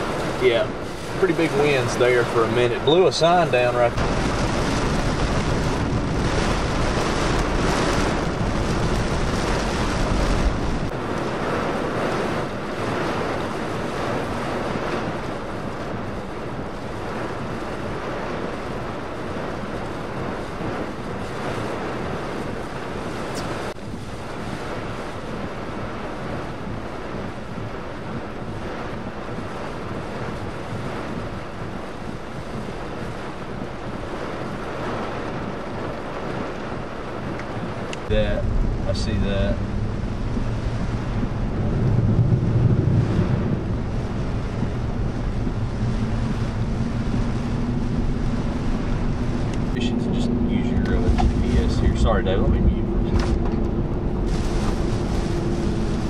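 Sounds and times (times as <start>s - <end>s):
tyres hissing on wet road: 0.0s - 10.5s, 54.2s - 56.0s
heavy rain pelting a vehicle: 0.0s - 56.0s
wind buffeting microphone: 0.0s - 56.0s.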